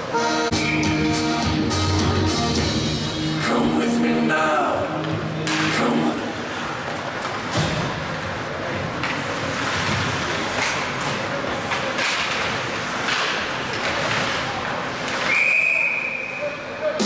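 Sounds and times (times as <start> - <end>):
arena noise: 0.0 - 17.0
skate blades scraping ice: 8.1 - 15.4.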